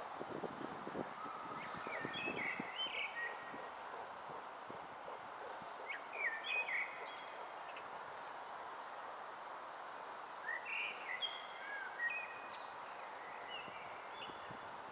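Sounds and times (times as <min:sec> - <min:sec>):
outdoor background hiss: 0:00.0 - 0:14.9
songbird warbling: 0:01.2 - 0:04.4, 0:05.0 - 0:07.9.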